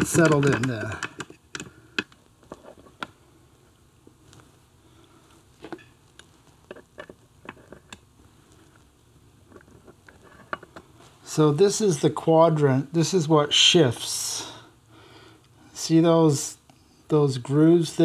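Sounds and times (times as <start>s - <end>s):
metal gears clicking and knocking: 0.0s - 1.3s.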